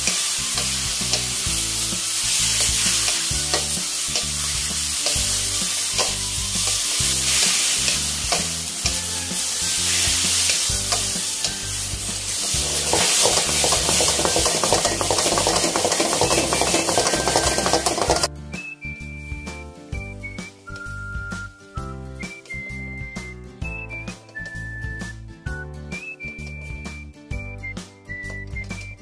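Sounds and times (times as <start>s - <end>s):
cabbage and bacon sizzling in wok: 0.0s - 18.3s
wooden spatula scraping a pan: 2.2s - 18.3s.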